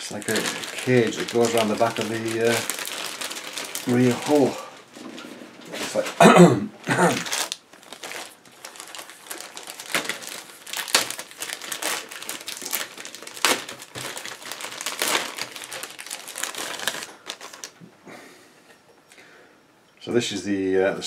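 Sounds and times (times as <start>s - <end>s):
plastic bags crinkling: 0.0s - 17.8s.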